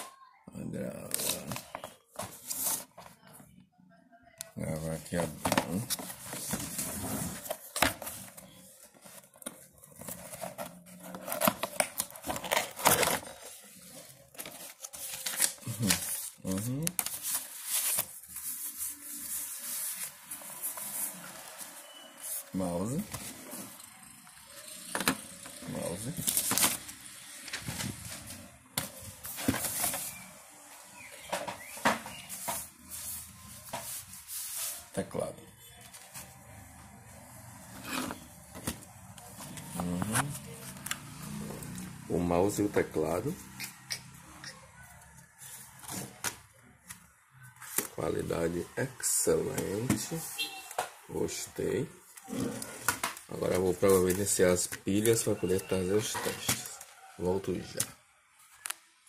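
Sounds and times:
cardboard packaging rustling: 5.1s - 23.8s, 24.6s - 30.4s.

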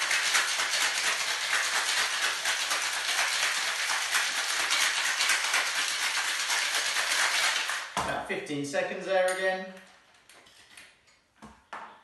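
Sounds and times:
ice rattling in cocktail shaker: 0.0s - 8.0s.

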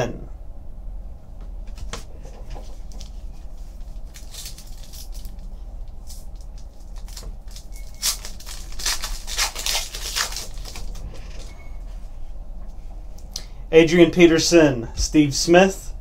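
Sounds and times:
foil wrapper crinkling and tearing: 2.9s - 11.0s.

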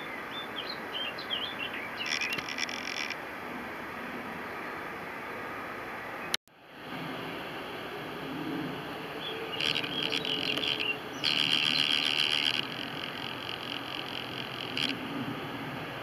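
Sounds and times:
rapid high-pitched chirping: 2.0s - 3.2s, 9.5s - 14.9s
distant jet roar: 6.8s - 16.0s.

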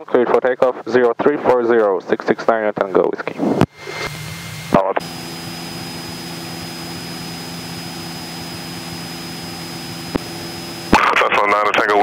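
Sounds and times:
plane engine droning: 3.2s - 12.0s
thin high whine: 3.4s - 12.0s.

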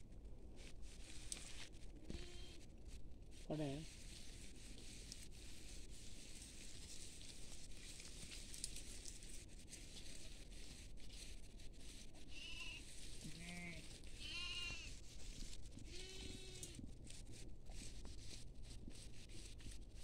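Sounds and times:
sheep and goats bleating: 2.1s - 2.6s, 12.2s - 15.0s, 15.8s - 16.8s.

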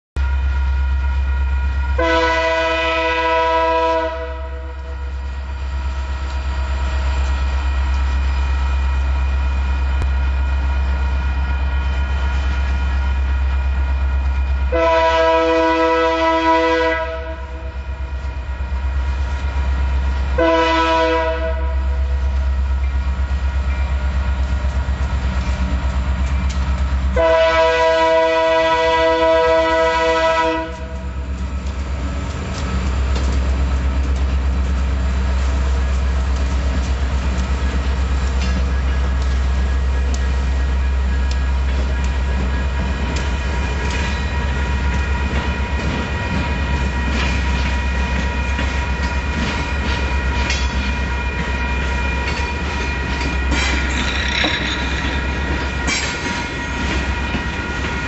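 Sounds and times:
locomotive air horn blasts: 1.9s - 5.0s, 14.7s - 17.8s, 20.4s - 22.1s, 27.1s - 31.0s.

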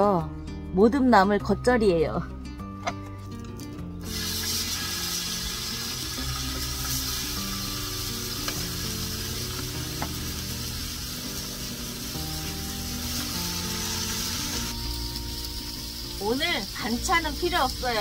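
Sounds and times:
pork sizzling on griddle: 4.0s - 18.0s.

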